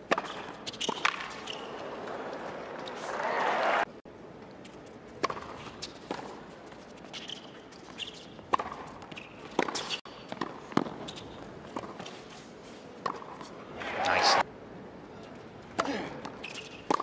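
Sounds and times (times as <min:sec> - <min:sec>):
tennis ball bounces: 0:00.0 - 0:03.0, 0:05.2 - 0:06.4, 0:08.1 - 0:12.0, 0:15.7 - 0:17.0
shoe squeaks on court: 0:07.0 - 0:10.3, 0:10.9 - 0:11.4, 0:16.4 - 0:17.0.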